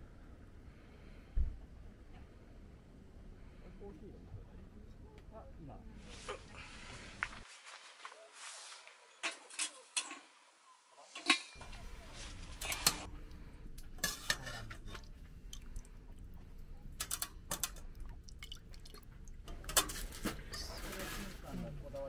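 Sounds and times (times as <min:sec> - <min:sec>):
ladle clinking against pot: 0:13.9 - 0:15.8.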